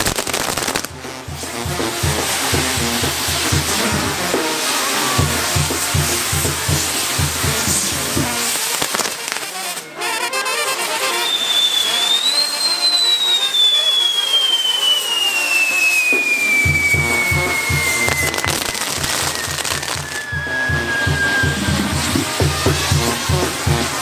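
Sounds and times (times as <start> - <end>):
hiss and crackle of spark wheels: 0.0 - 9.9
drum beat: 0.5 - 8.6, 16.1 - 24.0
band music: 0.8 - 8.6, 15.9 - 24.0
high falling whistle: 2.8 - 6.3, 10.8 - 22.9.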